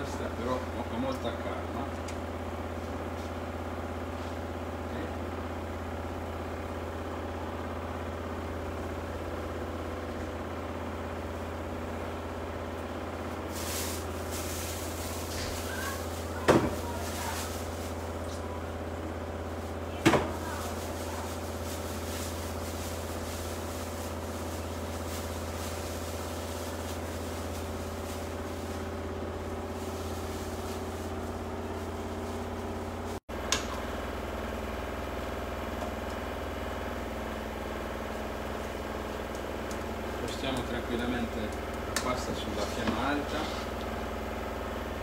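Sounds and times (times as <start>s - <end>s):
low mechanical hum: 0.0s - 45.0s
click: 33.5s - 33.8s.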